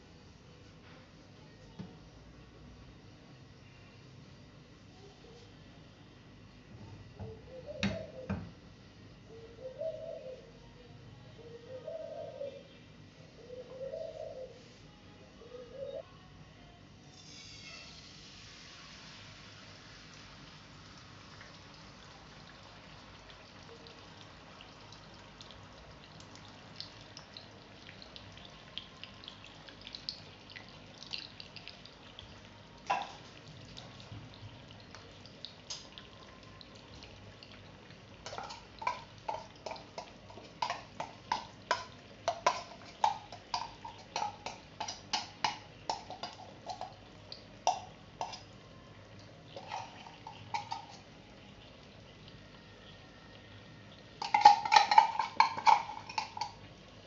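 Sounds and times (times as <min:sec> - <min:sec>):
bubbles popping in frying pan: 0:17.9 - 0:53.1, 0:53.8 - 0:57.0.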